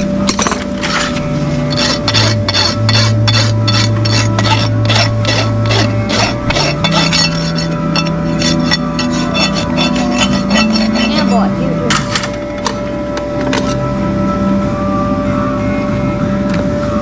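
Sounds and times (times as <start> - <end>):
rasp filing a hoof: 0.8 - 12.1.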